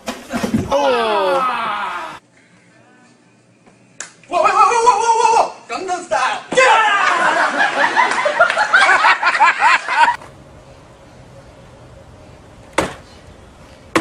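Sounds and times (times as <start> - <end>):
loud rapid laughter: 6.9 - 10.2.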